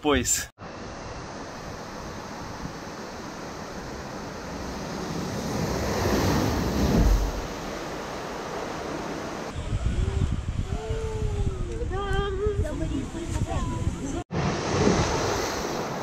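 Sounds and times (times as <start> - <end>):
water rushing in a slide channel: 1.0 - 9.6, 14.3 - 16.0
wind on the microphone: 8.6 - 16.0.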